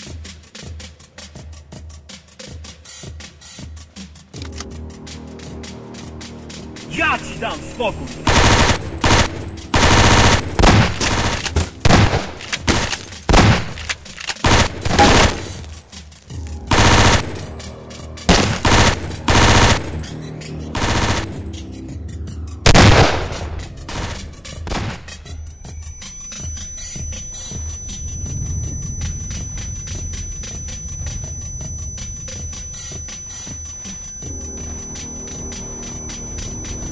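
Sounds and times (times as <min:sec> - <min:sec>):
automatic gunfire bursts: 0:08.2 - 0:15.7, 0:16.7 - 0:17.5, 0:18.3 - 0:20.0, 0:20.8 - 0:21.5.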